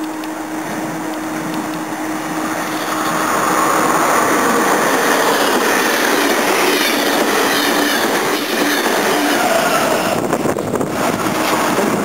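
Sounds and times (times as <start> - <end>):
train wheels on rails: 0.0 - 12.0.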